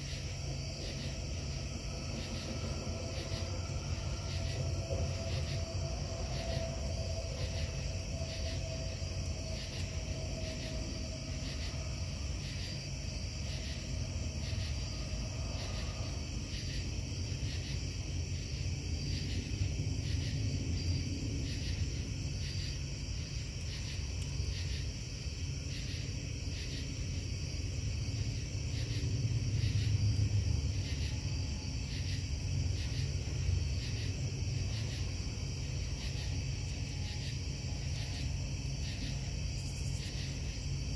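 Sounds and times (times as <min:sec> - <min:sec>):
insects chirping: 0:00.0 - 0:40.9
low industrial rumble: 0:00.1 - 0:40.8.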